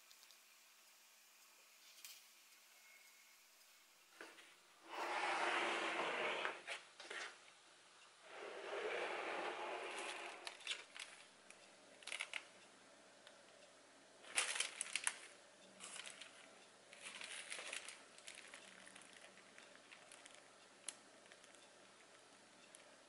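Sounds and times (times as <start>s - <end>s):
plastic piping bag crinkling: 10.4s - 11.4s, 12.0s - 12.6s, 14.2s - 22.9s.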